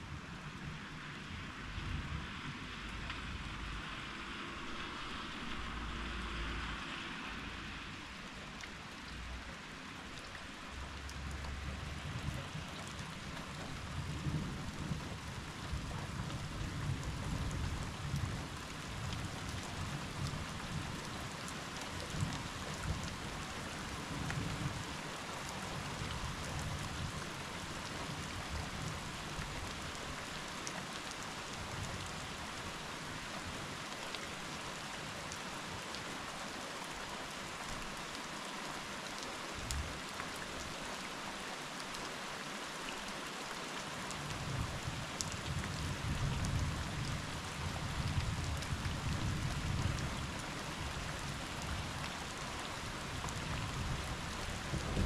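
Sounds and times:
rain falling: 0:00.0 - 0:55.0.

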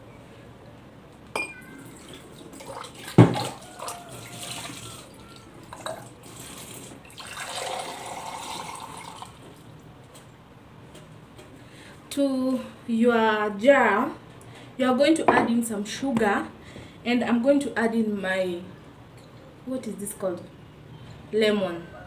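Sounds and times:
water pouring into glass: 0:01.4 - 0:09.4.

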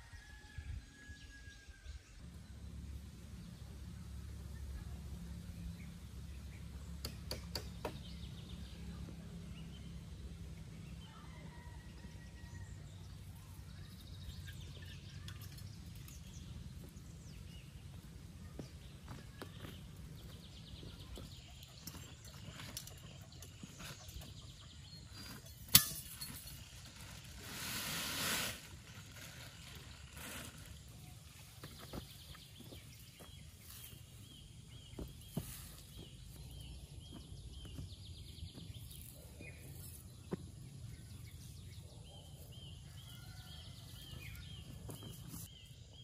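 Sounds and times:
birds chirping: 0:01.9 - 0:11.8, 0:12.6 - 0:27.7, 0:28.4 - 0:46.0.

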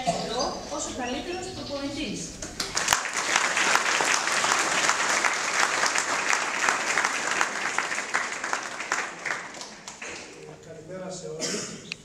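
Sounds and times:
audience applauding: 0:02.5 - 0:10.4.

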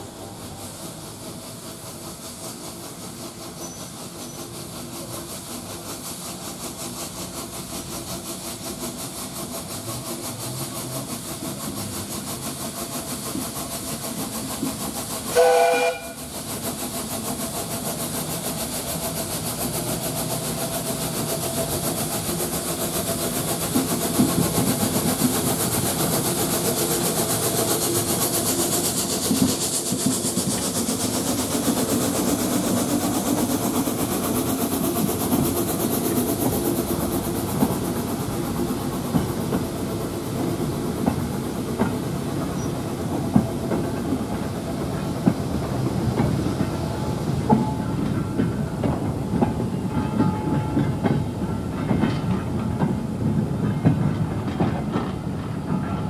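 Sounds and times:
steam locomotive exhaust beating: 0:00.0 - 0:56.0
steam whistle blast: 0:15.3 - 0:16.2.

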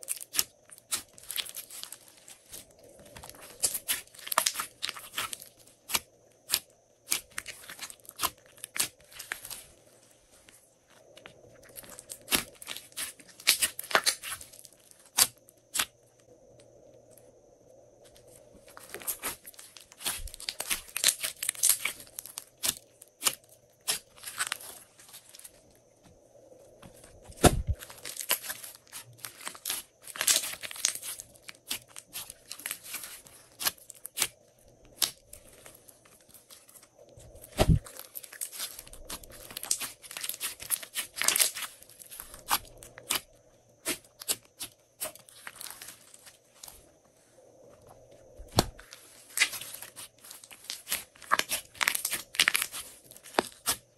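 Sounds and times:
slime crackling and popping: 0:03.2 - 0:09.6, 0:19.1 - 0:24.8, 0:27.4 - 0:34.3, 0:37.5 - 0:45.8, 0:48.5 - 0:53.8
dull thuds: 0:26.9 - 0:27.8, 0:37.4 - 0:37.9.

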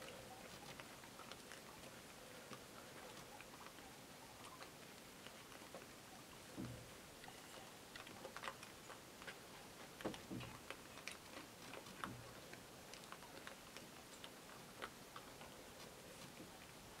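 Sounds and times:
hogs crunching corn on gravel: 0:00.0 - 0:17.0.

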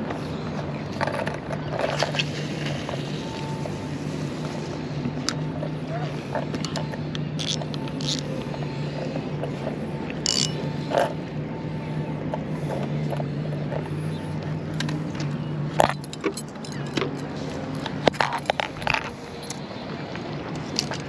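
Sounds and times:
low engine hum: 0:00.0 - 0:21.0
sharp clicks and crunches: 0:06.3 - 0:08.6
footsteps crunching on shells: 0:07.4 - 0:08.6.

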